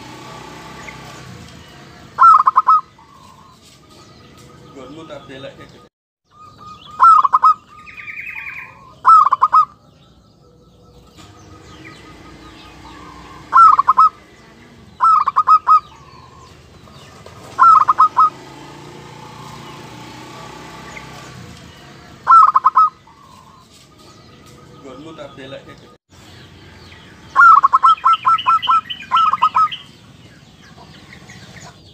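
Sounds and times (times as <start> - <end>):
dove cooing: 1.7 - 3.6, 6.3 - 18.5, 21.8 - 23.7, 27.3 - 29.9.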